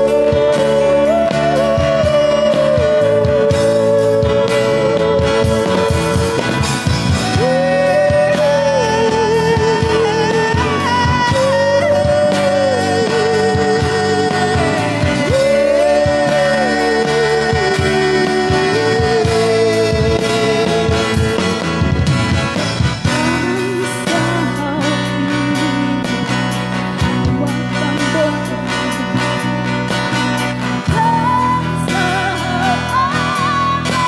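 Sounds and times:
woman singing with vibrato: 0.0s - 21.8s, 30.8s - 34.0s
acoustic guitars: 0.0s - 34.0s
bass guitar: 0.0s - 34.0s
drum kit: 0.0s - 34.0s.

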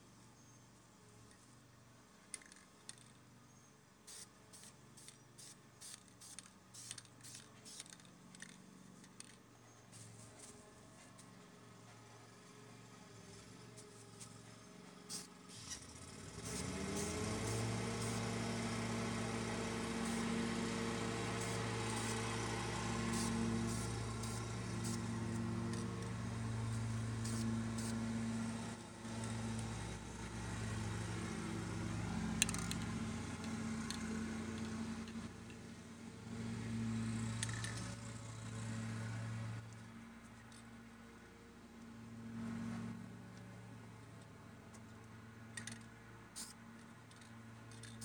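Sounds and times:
motor starting and humming: 15.5s - 39.6s.

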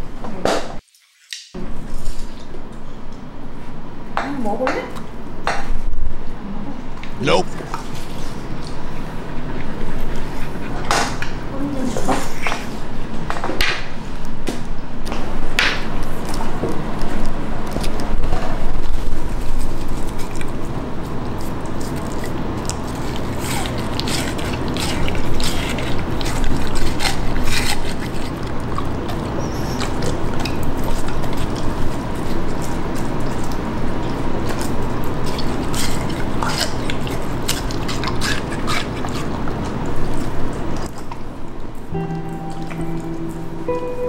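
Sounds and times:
dog chewing watermelon: 7.0s - 13.4s, 15.0s - 43.7s.

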